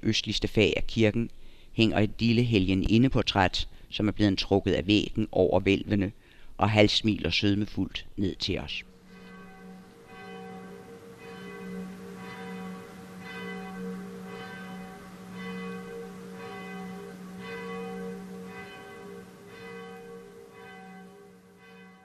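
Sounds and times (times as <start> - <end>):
church bell tolling: 8.4 - 22.0.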